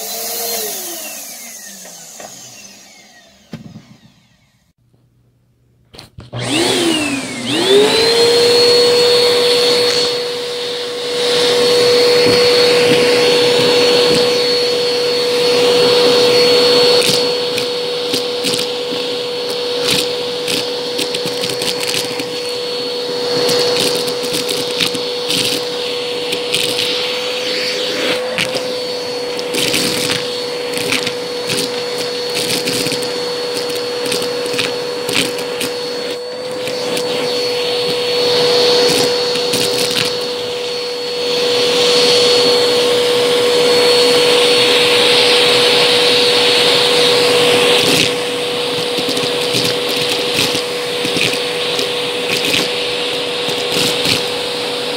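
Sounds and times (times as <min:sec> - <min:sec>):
vacuum cleaner motor whine: 0:00.0 - 0:04.8, 0:06.0 - 0:54.9
beans rattling through nozzle: 0:15.5 - 0:27.6, 0:28.2 - 0:40.5, 0:46.4 - 0:54.5.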